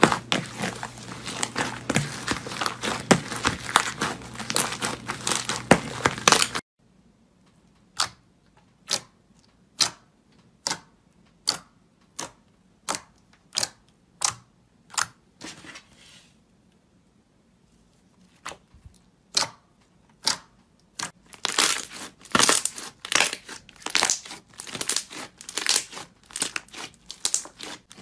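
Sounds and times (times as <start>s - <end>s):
jelly slime popping: 0.0s - 6.6s, 18.5s - 28.0s
slime squelching and crackling: 0.0s - 6.6s, 20.2s - 28.0s.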